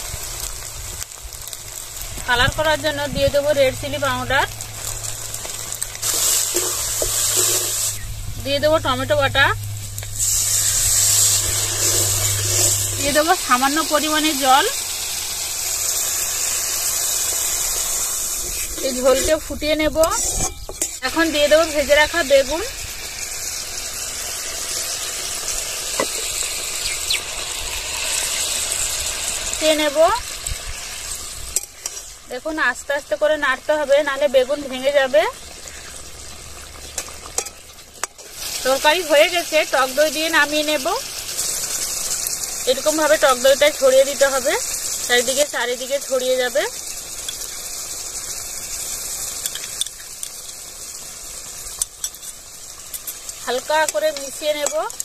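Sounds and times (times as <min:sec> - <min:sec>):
curry sizzling in metal pan: 0:00.0 - 0:55.0
gravy bubbling in a wok: 0:00.0 - 0:55.0.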